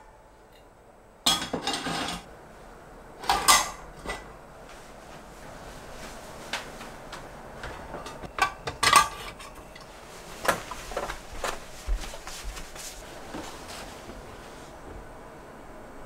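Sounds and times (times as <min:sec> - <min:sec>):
metal pot lids and pans clinking: 0:03.2 - 0:04.2.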